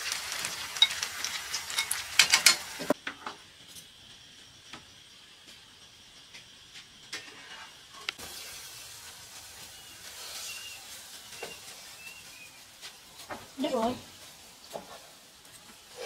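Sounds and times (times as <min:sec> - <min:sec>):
faint steady hiss: 0:00.0 - 0:16.0
faint high chirps: 0:09.5 - 0:13.2.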